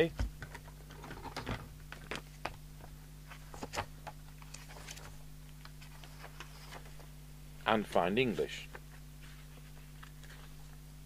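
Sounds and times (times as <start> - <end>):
steady low hum: 0.0 - 11.0
paper pages turning: 3.3 - 7.0, 9.2 - 10.8.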